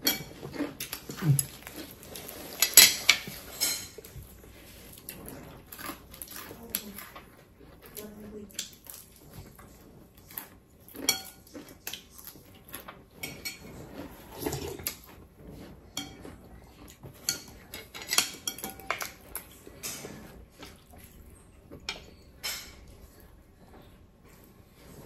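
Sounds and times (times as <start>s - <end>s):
spoons clinking on ceramic bowls: 17.2s - 19.2s.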